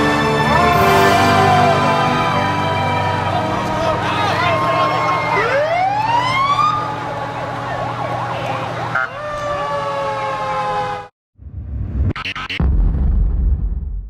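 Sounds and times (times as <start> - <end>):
emergency vehicle sirens wailing: 0.0 - 11.1
loud low rumble: 11.4 - 14.0.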